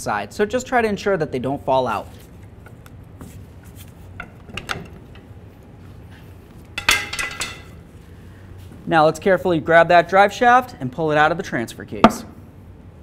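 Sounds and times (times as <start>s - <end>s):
metal clanks: 6.8s - 7.8s.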